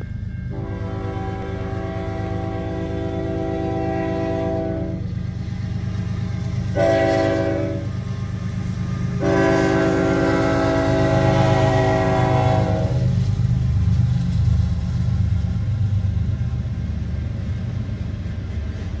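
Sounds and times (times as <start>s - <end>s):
locomotive air horn blasts: 0.5s - 5.1s, 6.7s - 8.0s, 9.1s - 13.2s.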